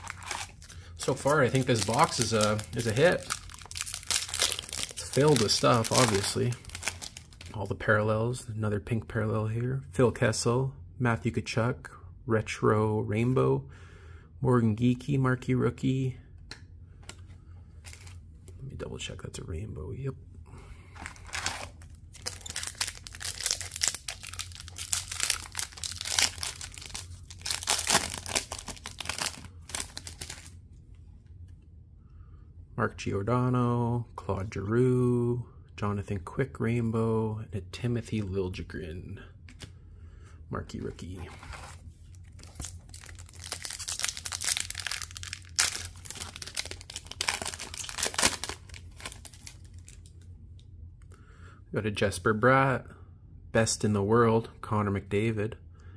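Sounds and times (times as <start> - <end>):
foil wrapper crinkling and tearing: 0.0 - 7.6, 21.0 - 30.6, 42.3 - 50.2.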